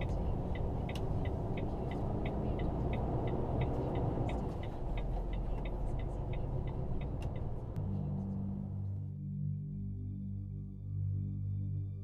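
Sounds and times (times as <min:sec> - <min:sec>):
light regular ticking: 0:00.0 - 0:07.8
truck engine and road rumble: 0:00.0 - 0:09.4.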